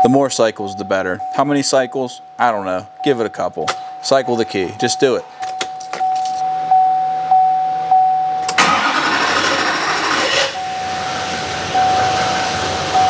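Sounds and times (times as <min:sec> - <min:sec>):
diesel engine starting and idling: 0:08.5 - 0:13.0.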